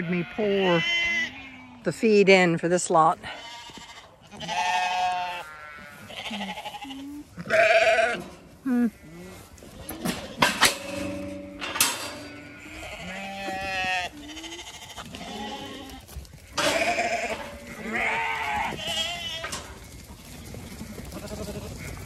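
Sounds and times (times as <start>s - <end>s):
sheep bleating: 0.0s - 1.9s, 3.2s - 11.0s, 12.2s - 19.7s, 20.6s - 22.0s
metal gate latch clanking: 10.0s - 12.5s.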